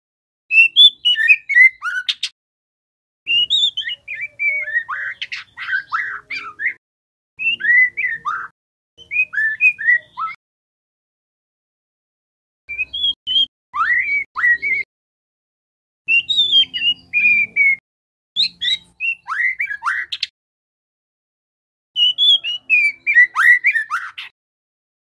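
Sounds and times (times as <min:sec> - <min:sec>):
bird chirps: 0:00.5 - 0:02.3, 0:03.3 - 0:06.8, 0:07.4 - 0:10.4, 0:12.7 - 0:14.9, 0:16.1 - 0:17.8, 0:18.4 - 0:20.3, 0:22.0 - 0:24.3
bird singing whistled notes: 0:00.5 - 0:02.3, 0:03.3 - 0:06.8, 0:07.4 - 0:10.4, 0:12.7 - 0:14.9, 0:16.1 - 0:17.8, 0:18.4 - 0:20.3, 0:22.0 - 0:24.3.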